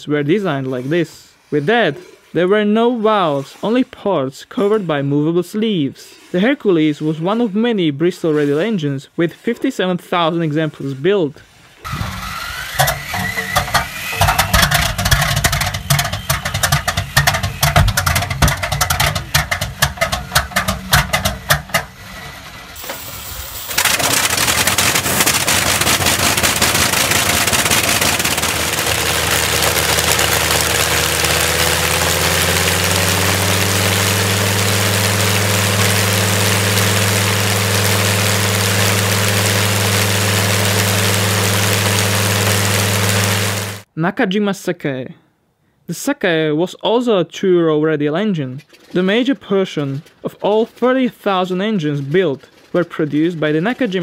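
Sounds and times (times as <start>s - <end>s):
engine firing with irregular bangs: 11.9s - 23.0s, 23.7s - 43.8s
radial aero engine running: 11.9s - 23.0s, 23.7s - 43.8s.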